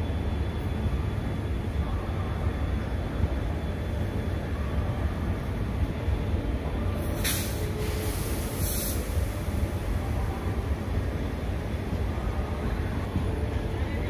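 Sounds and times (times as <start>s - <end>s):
train coaches rumbling: 0.0s - 14.0s
air brake hisses: 7.1s - 9.3s.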